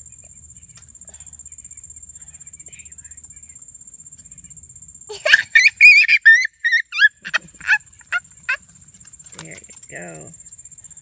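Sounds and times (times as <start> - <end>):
high-pitched voice squealing: 5.1 - 7.8.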